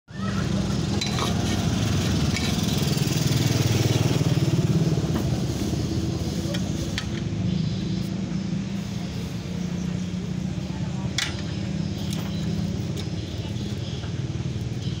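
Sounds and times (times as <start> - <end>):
small engine running: 0.2 - 7.0.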